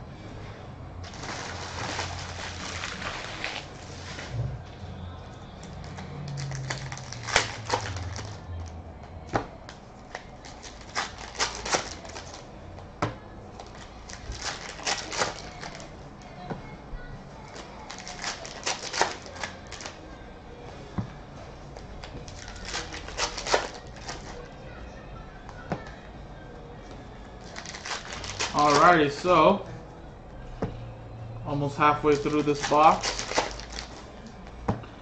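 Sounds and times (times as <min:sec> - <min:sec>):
cards flicking and snapping: 0:05.9 - 0:08.4, 0:09.3 - 0:12.4, 0:13.6 - 0:15.8, 0:17.9 - 0:20.0, 0:22.3 - 0:24.4, 0:32.2 - 0:34.0.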